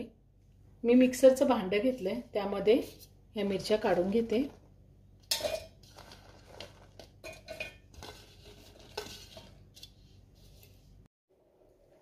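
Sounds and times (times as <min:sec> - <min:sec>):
chillies tapping in metal jar: 0:05.2 - 0:09.6.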